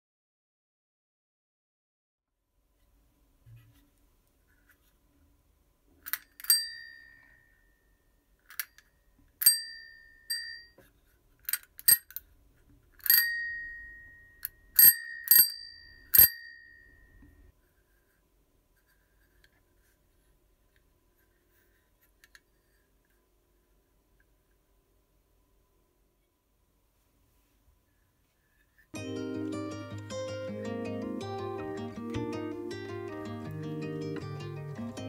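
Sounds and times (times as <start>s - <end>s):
bicycle bell dinging: 6.1s - 7.6s, 9.4s - 10.8s, 13.0s - 17.2s.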